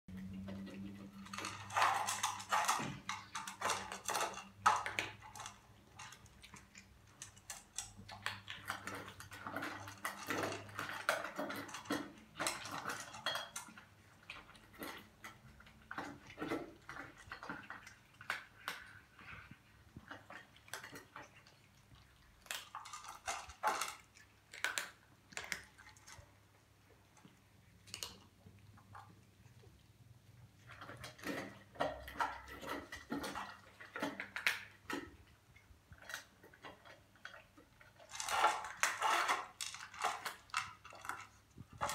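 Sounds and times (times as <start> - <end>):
bowls clinking and scraping: 0.1 - 26.2, 30.6 - 35.3
cats crunching dry kibble: 0.1 - 41.9.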